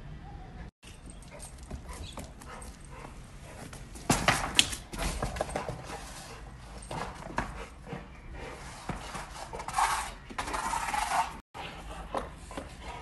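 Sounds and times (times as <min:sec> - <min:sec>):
tyre scraping on paving: 0:03.6 - 0:11.7.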